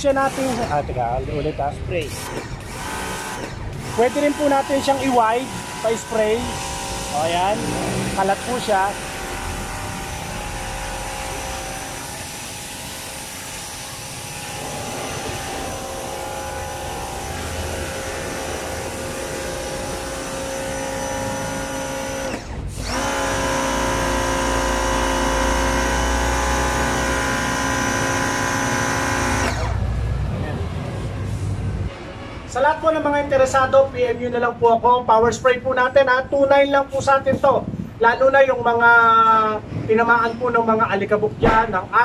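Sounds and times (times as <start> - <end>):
pressure washer motor whine: 2.2 - 30.0.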